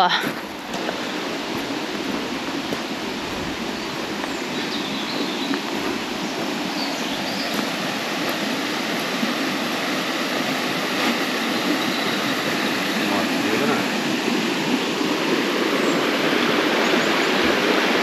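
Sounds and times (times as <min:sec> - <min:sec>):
river water rushing: 0:00.0 - 0:18.0
faint bird chirps: 0:11.8 - 0:13.0.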